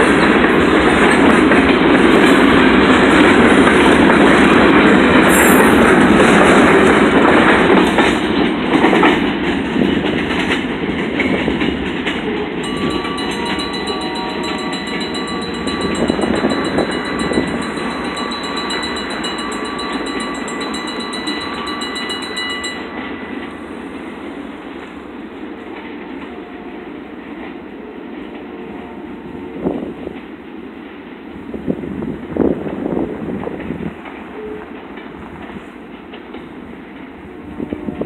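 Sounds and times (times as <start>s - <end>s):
freight train cars clattering: 0.0s - 24.9s.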